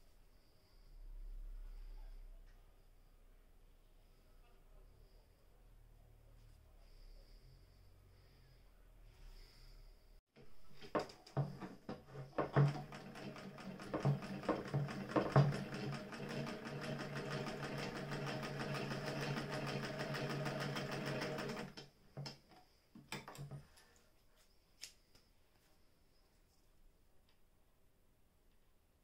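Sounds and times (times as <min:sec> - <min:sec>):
sewing machine stitching: 0:11.4 - 0:21.9.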